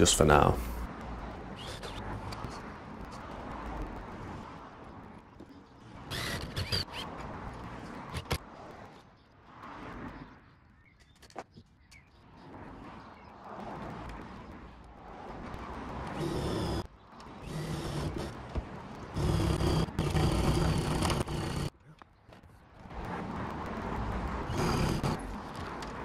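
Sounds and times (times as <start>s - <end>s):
cordless drill driving screw: 17.4s - 18.3s, 19.2s - 21.7s.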